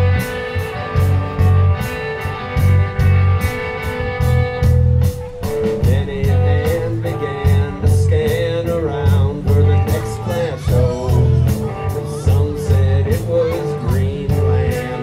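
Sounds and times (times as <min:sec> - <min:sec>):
bass guitar: 0:00.0 - 0:15.0
drum beat: 0:00.0 - 0:15.0
electric guitar: 0:00.0 - 0:15.0
man singing: 0:05.6 - 0:15.0.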